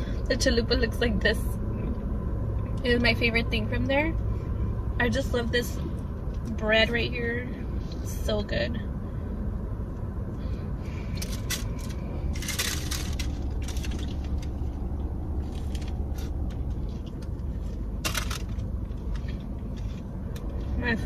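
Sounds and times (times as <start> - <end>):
steady low hum: 0.0 - 21.0
paper wrapper crinkling: 11.2 - 14.7.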